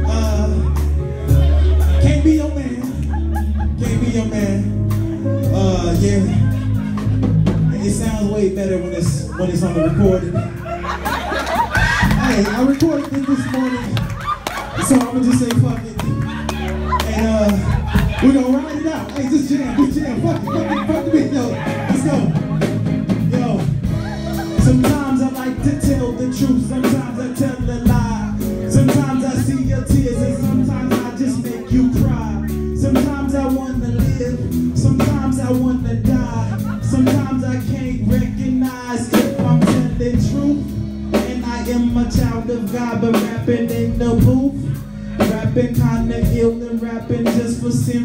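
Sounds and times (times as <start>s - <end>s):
drum kit beat: 0.0s - 48.0s
live band playing: 0.0s - 48.0s
man singing into a microphone: 24.6s - 48.0s.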